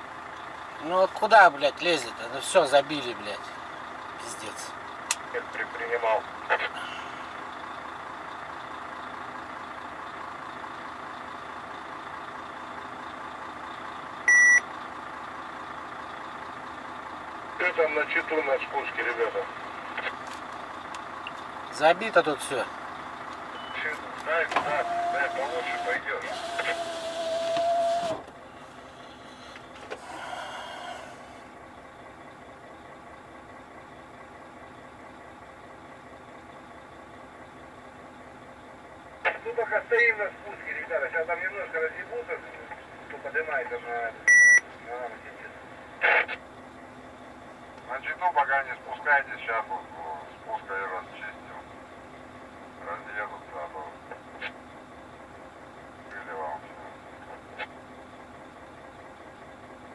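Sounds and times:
truck engine idling: 0:00.0 - 0:59.9
sharp electronic beep: 0:14.3 - 0:14.6, 0:44.3 - 0:44.6.

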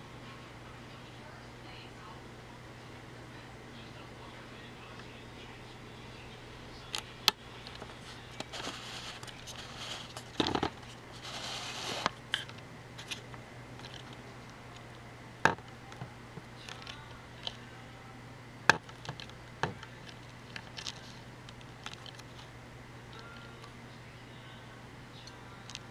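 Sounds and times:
low steady hum: 0:00.0 - 0:25.9
rustling: 0:07.9 - 0:12.2.

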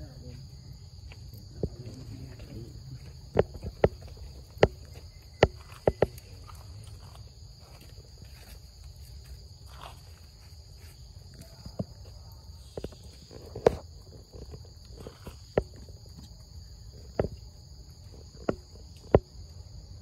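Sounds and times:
high drone of insects: 0:00.0 - 0:20.0.

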